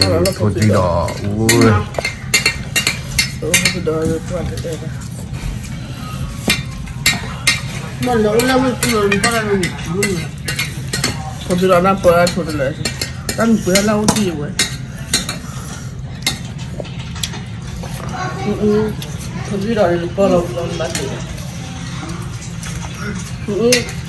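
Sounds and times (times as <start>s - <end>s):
utensil clinking against pot: 0.0s - 4.7s
spoon stirring and scraping in a pot: 6.4s - 17.1s.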